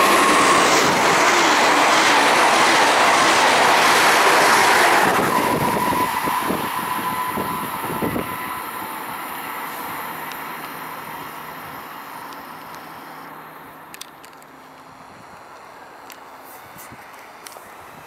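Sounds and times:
steady high tone: 0.0 - 12.2
train rushing past: 0.0 - 13.8.

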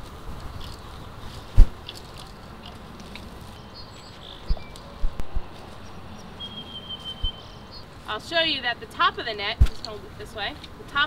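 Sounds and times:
bird chirps: 3.5 - 8.0
soft low thumps: 4.4 - 6.1
thin high whistle: 6.4 - 7.6.

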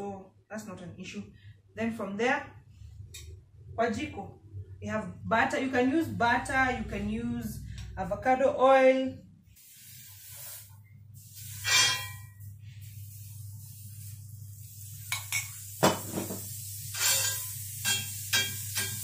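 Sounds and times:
utensils knocking and scraping a pan: 11.6 - 12.4, 15.1 - 19.0
butter sizzling in a frying pan: 13.0 - 19.0.

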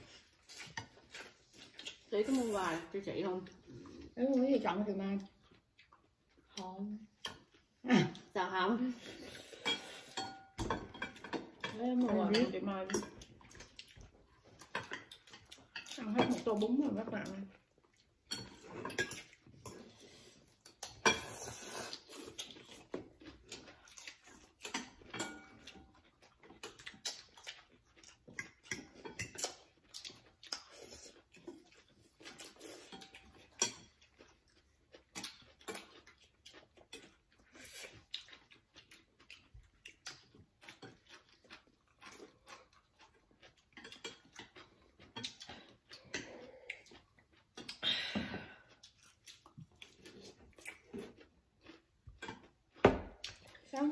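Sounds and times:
slurping and chewing: 0.0 - 53.9
chopsticks and spoons clicking bowls: 9.6 - 13.8, 23.5 - 26.0, 26.6 - 30.2, 43.4 - 46.9.

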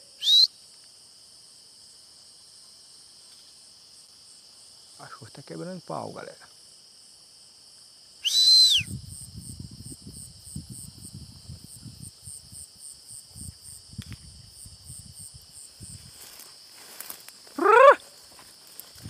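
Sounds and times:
crickets chirping: 0.0 - 19.0
footsteps through brush: 15.8 - 19.0
short loud rising cry: 17.6 - 18.0.

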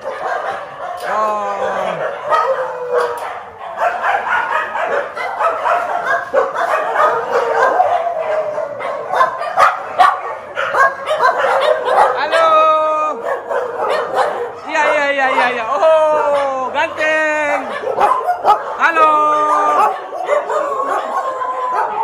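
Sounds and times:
dogs barking and yipping: 0.0 - 22.0.

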